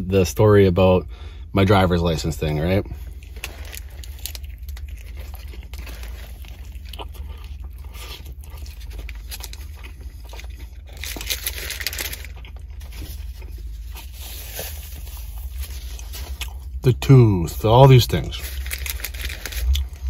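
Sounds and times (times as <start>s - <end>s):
low steady hum: 0.0s - 20.0s
wet chewing clicks and crunches: 3.0s - 16.8s, 18.4s - 20.0s.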